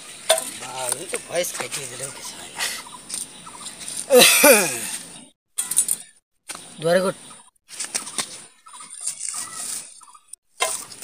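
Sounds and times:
voices: 0.3s - 6.0s.

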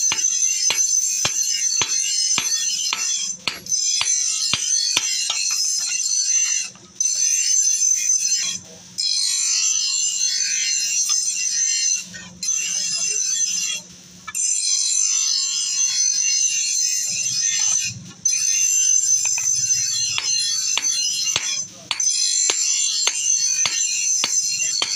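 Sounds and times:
hammer striking steel on anvil: 0.0s - 5.6s, 19.2s - 24.9s.

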